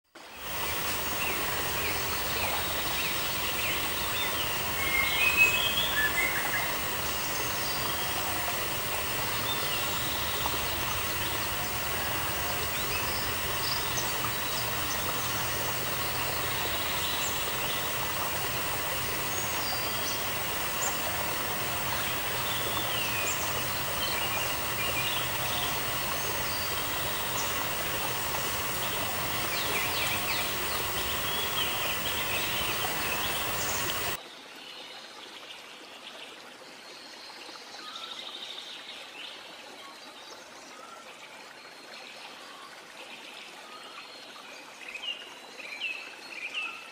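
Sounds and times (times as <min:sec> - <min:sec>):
steady background hiss: 0:00.2 - 0:34.2.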